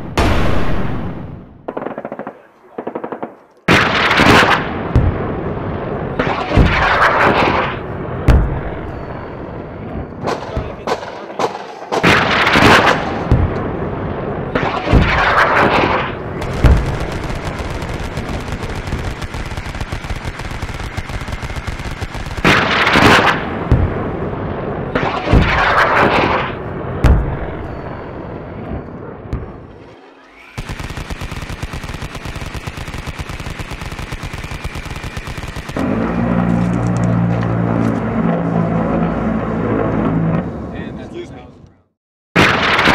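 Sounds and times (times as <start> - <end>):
explosion blasts: 0.0 - 1.7, 3.7 - 38.4
machine-gun fire: 10.2 - 13.5, 14.6 - 24.1, 29.4 - 36.4.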